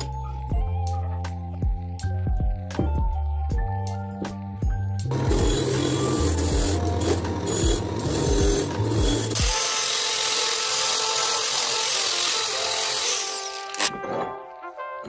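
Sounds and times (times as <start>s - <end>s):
angle grinder grinding metal: 5.1s - 14.4s
wire wheel scrubbing metal: 5.1s - 14.4s.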